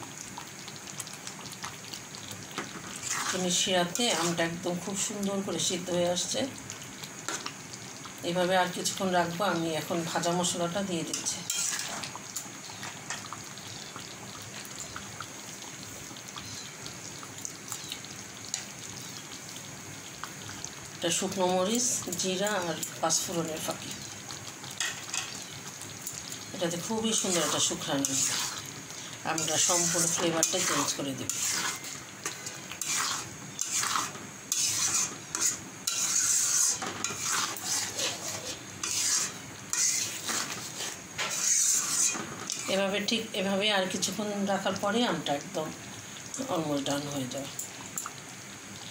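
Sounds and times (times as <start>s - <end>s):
syrup bubbling with hiss and pops: 0.0s - 48.9s
metal spatula scraping pan: 3.0s - 4.4s, 11.1s - 12.1s, 27.2s - 28.6s, 29.4s - 42.8s.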